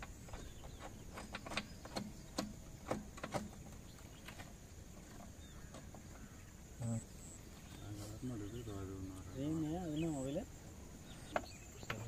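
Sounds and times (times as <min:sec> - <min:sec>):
metal clicks and knocks: 0:00.0 - 0:06.1.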